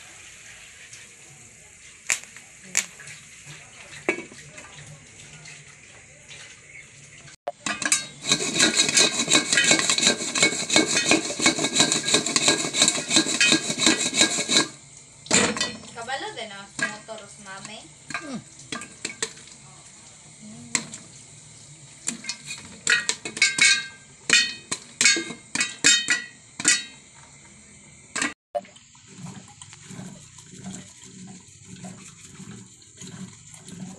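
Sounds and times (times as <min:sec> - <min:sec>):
popcorn popping under metal lid: 0:02.1 - 0:03.0, 0:07.5 - 0:16.0, 0:22.0 - 0:27.0.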